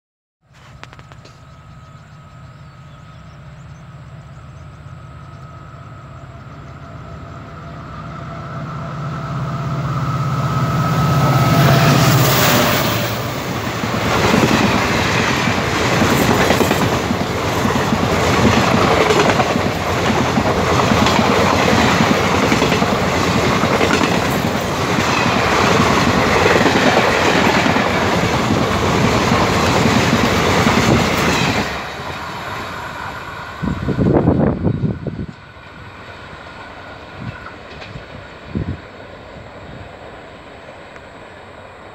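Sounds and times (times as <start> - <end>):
locomotive engine hum: 0.6 - 41.9
train coaches rumbling: 0.8 - 41.9
wheels clacking over rail joints: 11.8 - 32.3.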